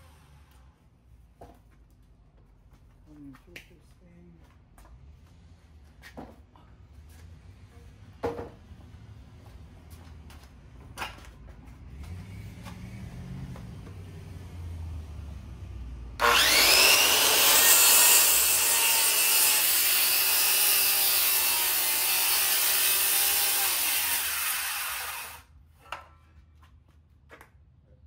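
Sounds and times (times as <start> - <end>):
circular saw cutting wood: 16.2 - 25.5.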